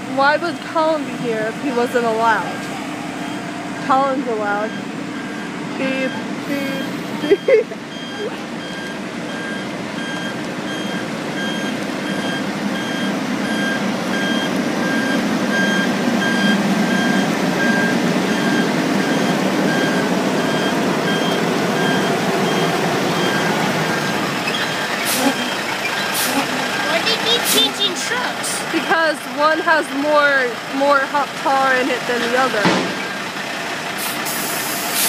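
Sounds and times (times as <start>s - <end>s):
truck engine running: 0.0s - 35.0s
reversing alarm beeps: 4.5s - 27.7s.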